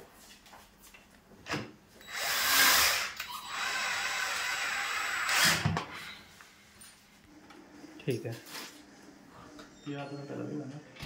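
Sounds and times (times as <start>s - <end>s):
cordless drill driving screw: 2.0s - 5.8s.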